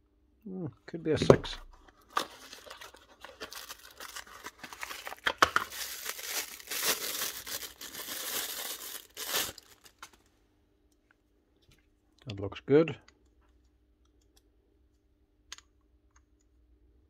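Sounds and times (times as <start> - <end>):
cardboard box opening: 2.0 - 5.7
plastic bag crinkling and tearing: 2.0 - 10.3.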